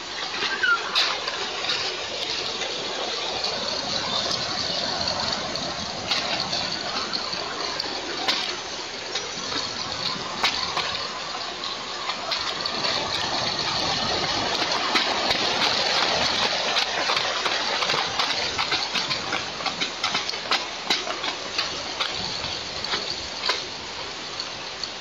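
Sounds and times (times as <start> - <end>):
rushing wind: 0.0 - 25.0.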